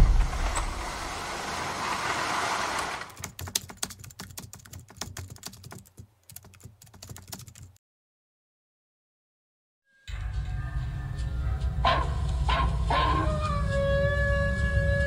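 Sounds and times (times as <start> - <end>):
rushing noise: 0.0 - 3.2.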